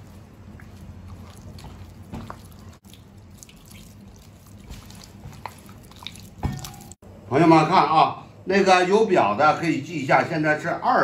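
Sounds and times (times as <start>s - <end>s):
hand kneading wet batter: 0.0s - 7.0s
water dripping from ladle: 0.6s - 7.0s.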